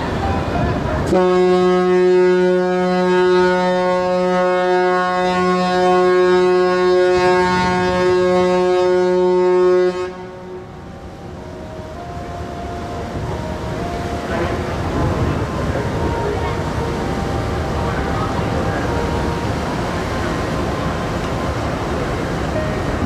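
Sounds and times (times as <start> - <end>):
ship horn blast: 0.0 - 23.0.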